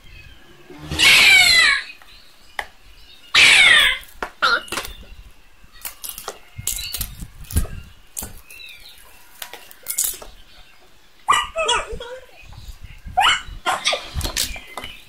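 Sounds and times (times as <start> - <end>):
plastic wrap crinkling: 5.8 - 10.4.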